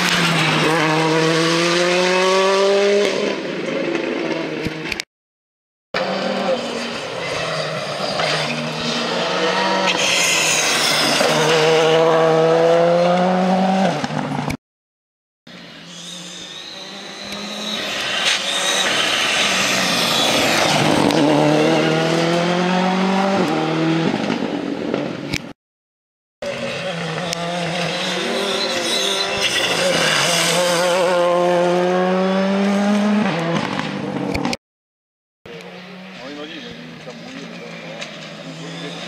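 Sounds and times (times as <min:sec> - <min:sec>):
rally car engines accelerating: 0:00.0 - 0:04.9, 0:06.0 - 0:14.4, 0:16.6 - 0:25.2, 0:26.4 - 0:34.5.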